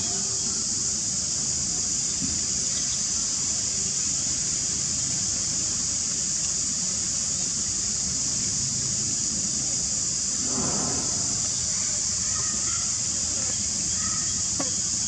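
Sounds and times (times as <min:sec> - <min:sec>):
high-pitched insect drone: 0:00.0 - 0:15.0
low rumble: 0:10.4 - 0:12.1.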